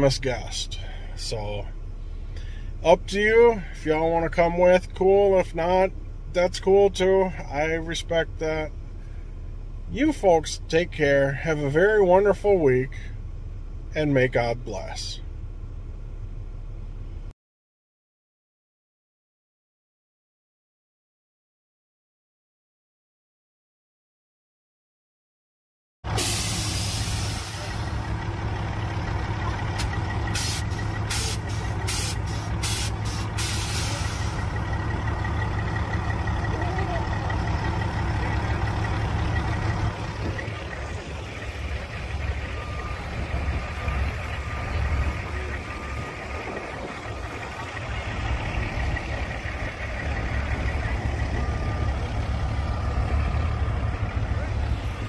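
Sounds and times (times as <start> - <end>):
truck engine humming: 0.0 - 17.3, 26.1 - 55.0
short air hisses: 26.1 - 27.9, 29.8 - 34.4.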